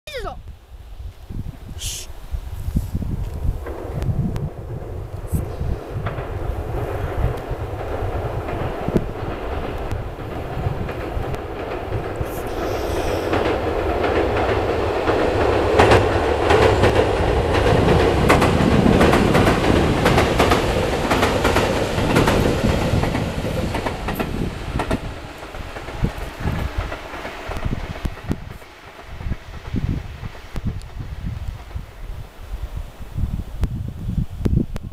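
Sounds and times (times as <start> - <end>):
electric train passing: 3.0 - 34.4
wheels clicking over rail joints: 5.9 - 32.0.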